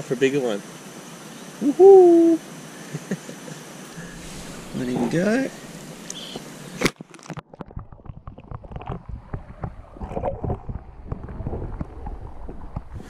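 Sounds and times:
underwater bubbling and sloshing: 0:03.9 - 0:06.8, 0:07.4 - 0:13.0.

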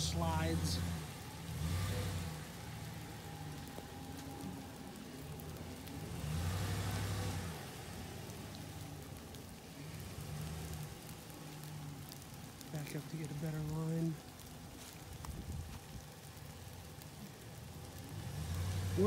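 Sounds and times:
truck engine revving: 0:00.0 - 0:13.5, 0:17.8 - 0:19.0
steady hiss: 0:00.0 - 0:19.0.

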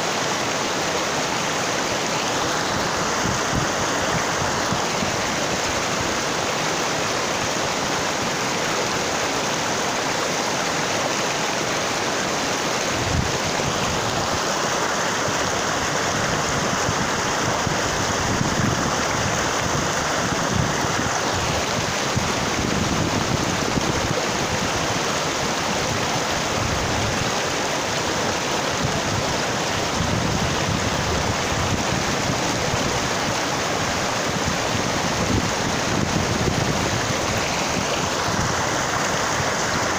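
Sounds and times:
stream rushing over boulders: 0:00.0 - 0:39.9.

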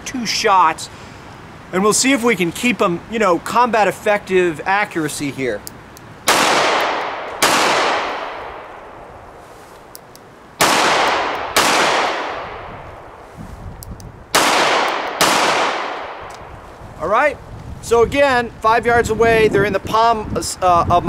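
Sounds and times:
revolver shots echoing: 0:06.3 - 0:09.2, 0:10.6 - 0:12.8, 0:14.3 - 0:16.3.

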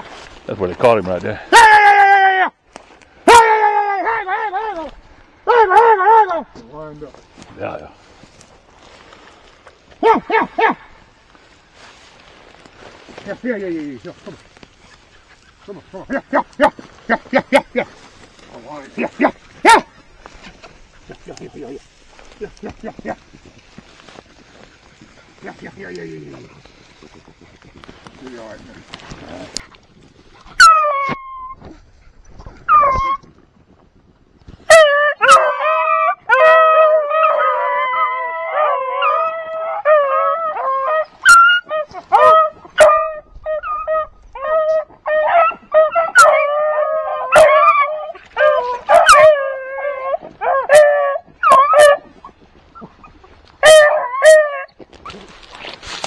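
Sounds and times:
rustling through grass: 0:00.0 - 0:56.0
dog yelps: 0:01.5 - 0:02.3, 0:03.2 - 0:04.9, 0:05.5 - 0:06.3, 0:19.2 - 0:19.9, 0:30.6 - 0:31.6, 0:32.6 - 0:33.2, 0:34.7 - 0:52.9, 0:53.6 - 0:55.2
beagles baying: 0:30.4 - 0:31.6, 0:34.7 - 0:54.8.

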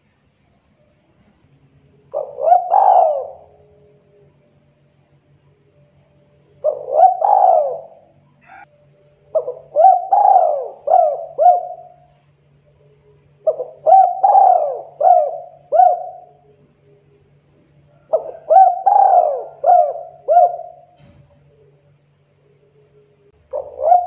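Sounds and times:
dove cooing: 0:02.1 - 0:03.9, 0:06.5 - 0:08.7, 0:09.3 - 0:12.1, 0:13.4 - 0:16.6, 0:17.9 - 0:21.0, 0:23.4 - 0:24.0.

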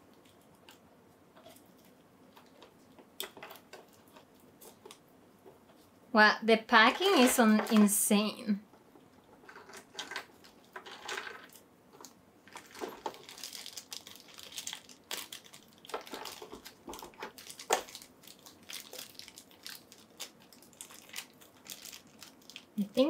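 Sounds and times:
packaging crinkling and rustling: 0:09.2 - 0:23.0.

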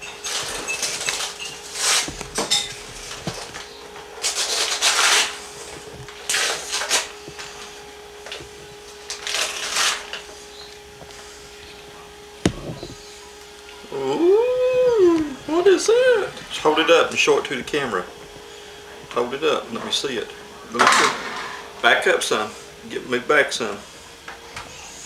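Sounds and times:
faint steady hum: 0:00.0 - 0:25.0
paper and packaging rustling: 0:00.2 - 0:11.4
sharp knock: 0:12.5 - 0:13.0.

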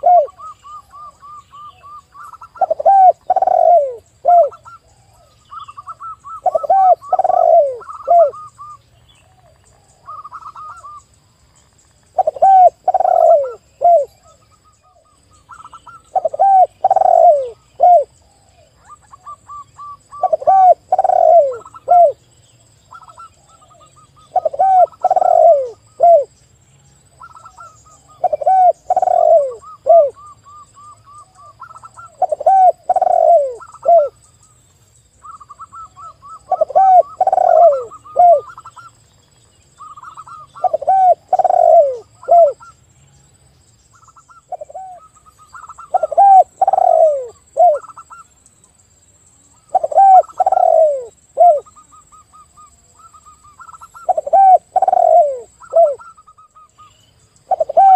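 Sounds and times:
deep falling dove coos: 0:00.0 - 0:08.7, 0:12.2 - 0:14.4, 0:16.1 - 0:18.1, 0:20.1 - 0:22.2, 0:24.3 - 0:26.3, 0:27.3 - 0:30.6, 0:31.4 - 0:34.2, 0:35.6 - 0:38.7, 0:40.2 - 0:42.6, 0:45.7 - 0:48.0, 0:49.7 - 0:51.7, 0:54.0 - 0:56.2, 0:57.5 - 0:57.9.

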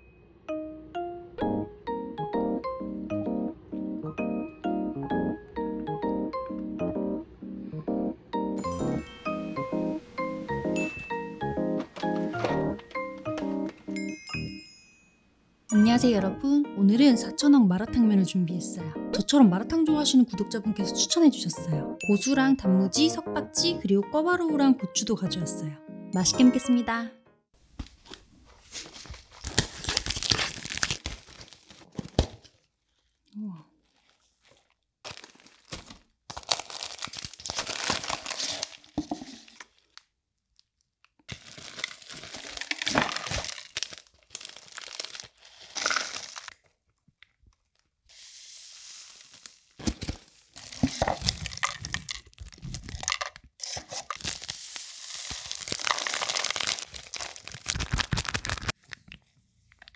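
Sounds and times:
plastic and foil packaging crinkling: 0:27.8 - 0:33.2, 0:33.8 - 0:59.9.

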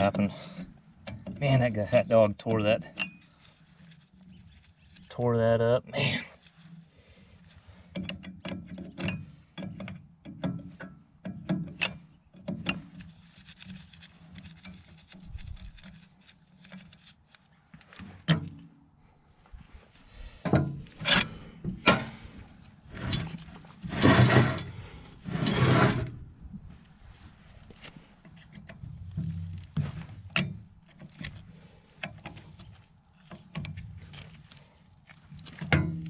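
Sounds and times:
sharp metal clicks and knocks: 0:00.0 - 0:04.3, 0:07.9 - 0:17.1, 0:28.2 - 0:34.3, 0:35.3 - 0:36.0
scraping rasps: 0:00.0 - 0:26.3.

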